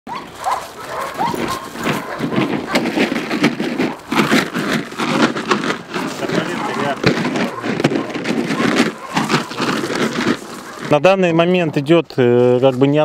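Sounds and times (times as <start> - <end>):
dog barking rapidly: 0.1 - 5.3, 6.0 - 11.1.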